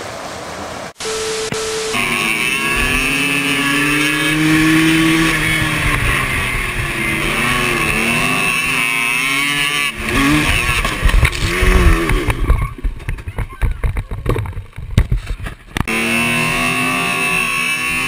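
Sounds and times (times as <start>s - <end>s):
steady rushing noise: 0.0s - 13.1s
quad engine revving: 1.0s - 12.9s, 15.8s - 18.0s.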